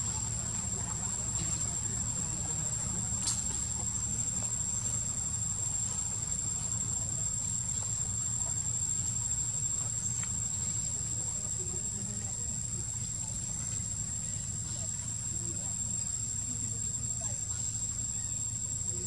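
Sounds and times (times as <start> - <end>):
insects shrilling: 0.0 - 19.0
low steady rumble: 0.0 - 19.0.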